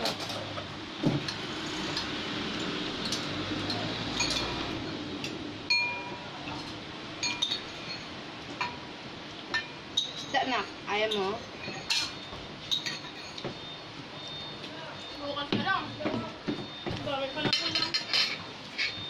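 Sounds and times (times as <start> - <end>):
metal spoon clinking on glass jar: 2.0 - 4.6, 5.7 - 8.8, 9.6 - 13.5.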